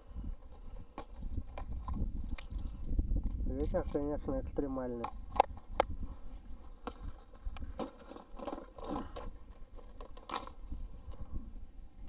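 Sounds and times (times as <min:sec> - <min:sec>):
wind buffeting microphone: 0:00.0 - 0:12.0
clicks scrapes and crunches: 0:00.4 - 0:04.1, 0:05.0 - 0:11.2.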